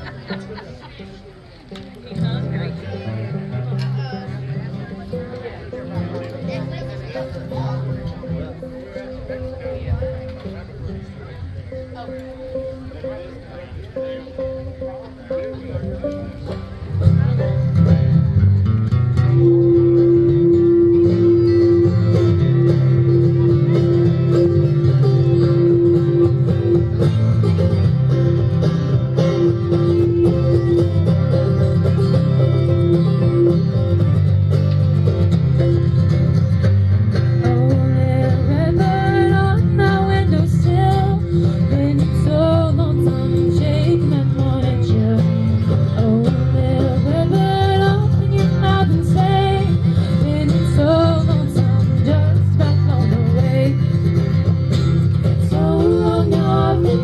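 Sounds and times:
fiddle: 0.0 - 57.0
picked banjo: 0.0 - 57.0
strummed acoustic guitar: 0.0 - 57.0
upright bass: 0.0 - 57.0.

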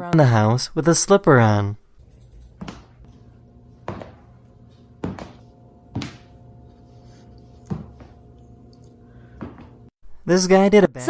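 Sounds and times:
dull thuds on hardwood floor: 3.8 - 4.4, 5.0 - 6.3, 7.6 - 8.2.

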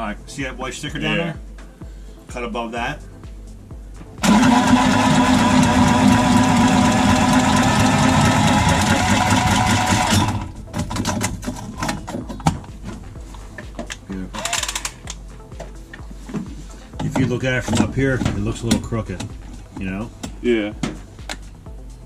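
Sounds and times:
tubing cutter cutting copper pipe: 4.2 - 12.1.

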